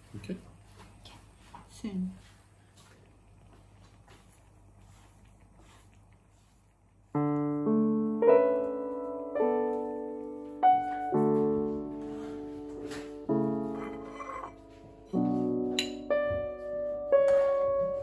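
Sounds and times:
slow piano music: 7.1 - 18.0.

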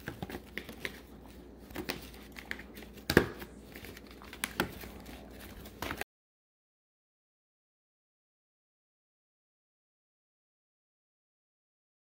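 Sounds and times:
foil crinkling: 0.0 - 6.0.

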